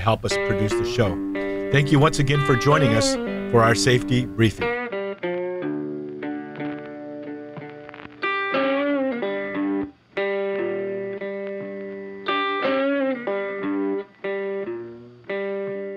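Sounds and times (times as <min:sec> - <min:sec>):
guitar playing held notes: 0:00.0 - 0:15.9.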